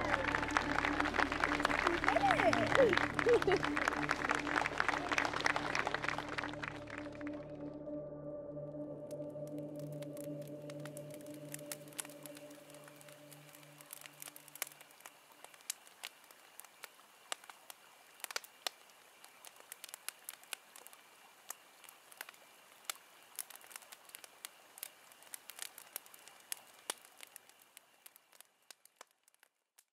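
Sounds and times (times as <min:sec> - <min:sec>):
wood fire crackling and popping: 0:09.4 - 0:29.9.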